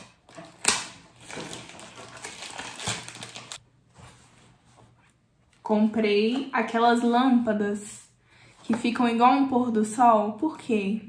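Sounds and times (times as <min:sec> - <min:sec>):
packaging rustling and crinkling: 0:00.0 - 0:03.6.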